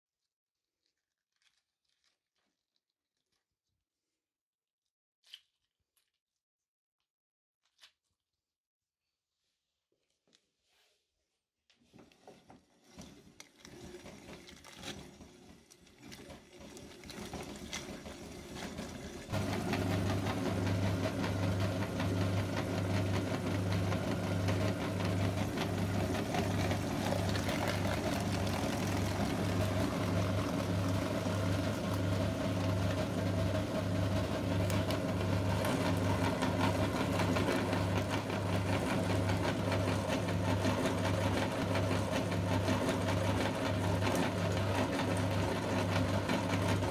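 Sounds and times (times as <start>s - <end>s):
meat grinder humming: 12.9s - 46.9s.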